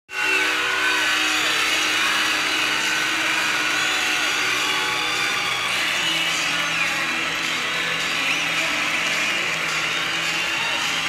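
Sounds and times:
goal horn chord: 0.1 - 10.1.

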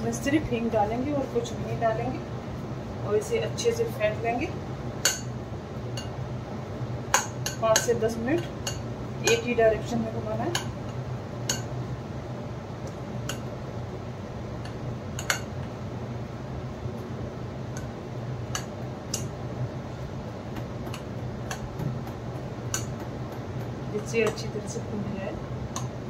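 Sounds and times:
steady low hum: 0.0 - 26.0
batter being beaten in a bowl: 20.5 - 24.5.

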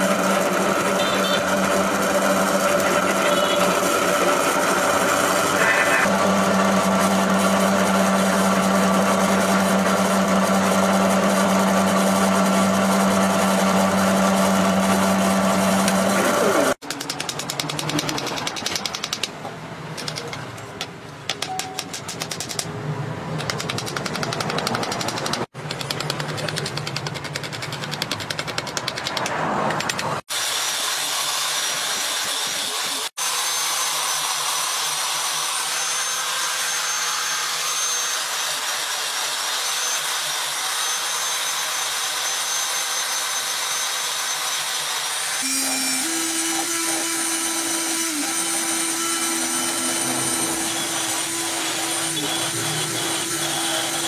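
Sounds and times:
cordless drill sanding wood: 0.0 - 16.8, 30.2 - 54.0.

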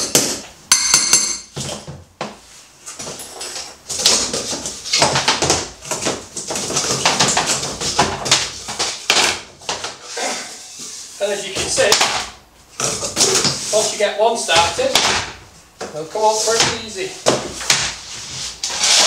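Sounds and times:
ringing strike: 0.7 - 1.5
floorboards being prised up: 1.5 - 19.0.

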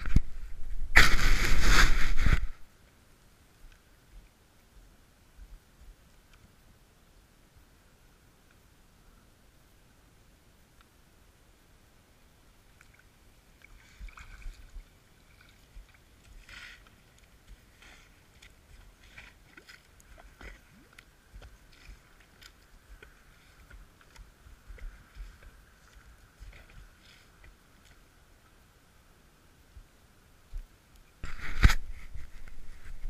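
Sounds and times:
faint steady hiss: 0.0 - 33.0
rubber boots stepping on wet sand: 15.7 - 27.6.

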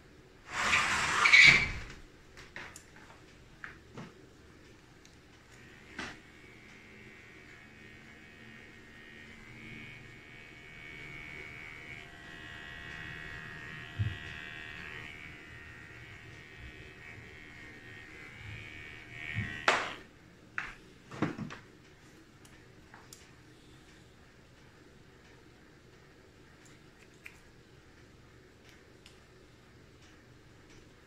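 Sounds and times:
electric hair clippers buzzing: 5.4 - 20.1.

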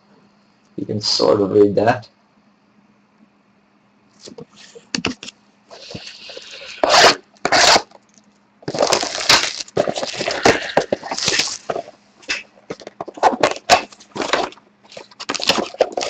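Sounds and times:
cardboard and wrapper tearing: 5.8 - 7.9, 8.6 - 16.0.

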